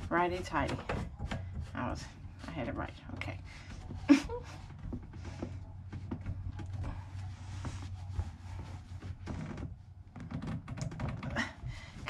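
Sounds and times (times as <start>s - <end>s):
low steady hum: 0.0s - 12.0s
towel rubbing plastic pipe: 0.0s - 12.0s.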